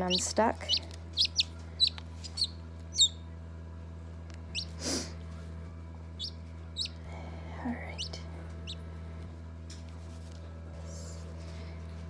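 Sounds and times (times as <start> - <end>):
chick peeping: 0.0 - 3.2, 4.5 - 4.8, 6.2 - 7.0
steady low hum: 0.0 - 12.0.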